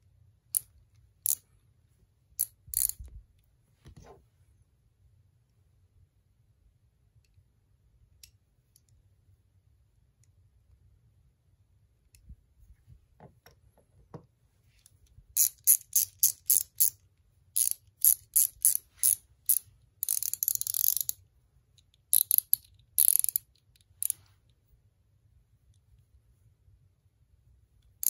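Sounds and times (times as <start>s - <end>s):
ratchet clicking: 2.4s - 3.0s, 15.4s - 17.0s, 17.6s - 21.2s, 22.1s - 23.4s.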